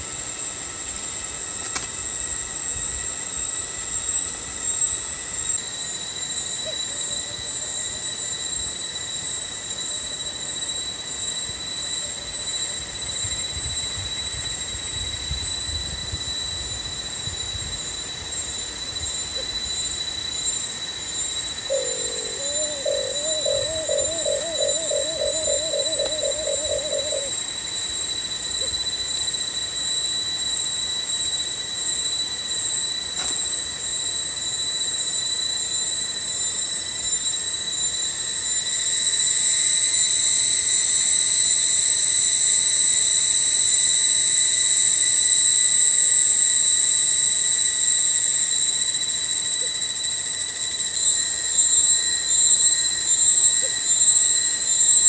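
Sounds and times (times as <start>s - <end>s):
cicadas singing: 0.0s - 55.0s
dove cooing: 21.7s - 27.4s.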